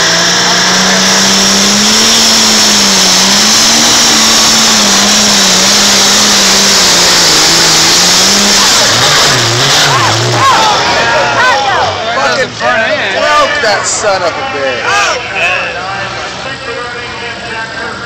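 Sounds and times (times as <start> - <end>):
tractor engine running under load: 0.0 - 11.3.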